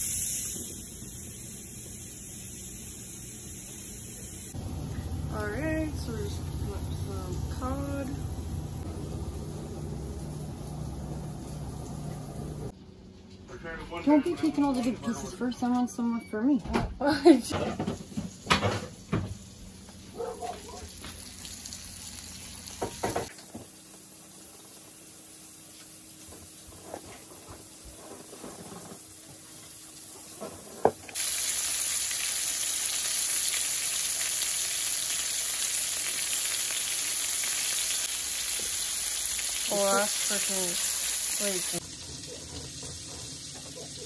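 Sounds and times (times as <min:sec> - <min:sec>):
fish frying in a pan: 0:00.0 - 0:13.3, 0:20.8 - 0:44.0.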